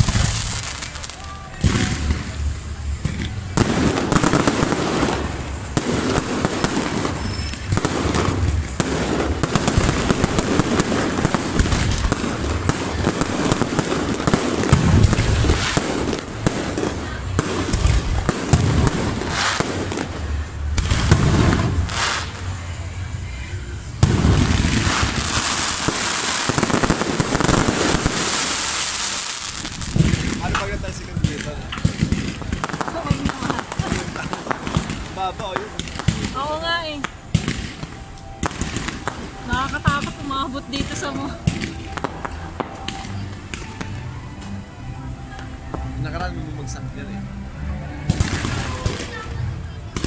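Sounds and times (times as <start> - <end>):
fireworks bangs and crackling: 0.0 - 46.9, 48.0 - 50.0.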